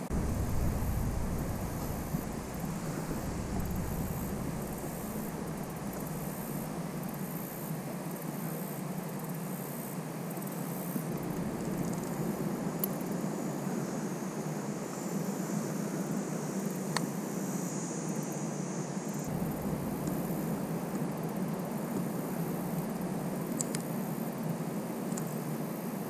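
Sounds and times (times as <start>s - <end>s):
low hum: 0.0s - 8.1s, 11.0s - 13.3s, 19.3s - 23.6s
rushing outdoor background noise: 0.0s - 26.0s.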